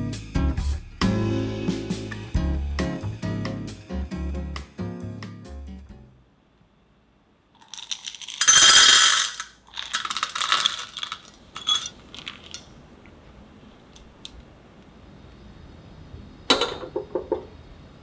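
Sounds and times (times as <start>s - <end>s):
chocolate pieces clattering into a saucepan: 7.6s - 12.7s.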